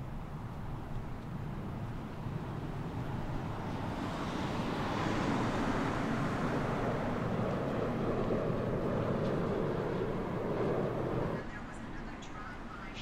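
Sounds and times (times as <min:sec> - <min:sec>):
steady low rushing noise: 0:05.6 - 0:13.0.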